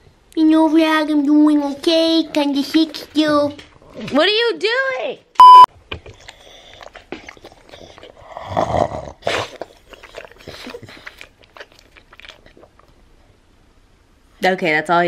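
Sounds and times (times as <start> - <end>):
dog grunting and snorting: 6.5 - 11.4.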